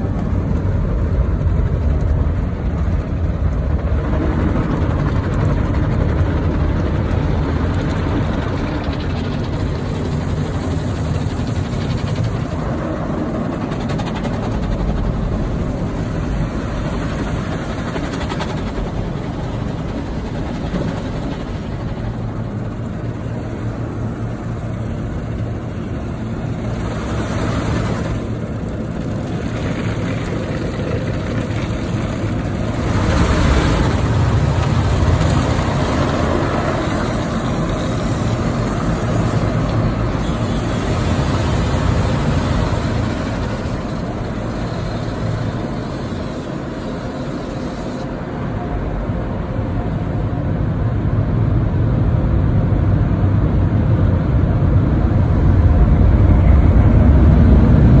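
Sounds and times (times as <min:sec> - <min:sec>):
car wash machinery rumbling: 0:00.0 - 0:52.3
car wash water spraying: 0:24.3 - 0:48.0.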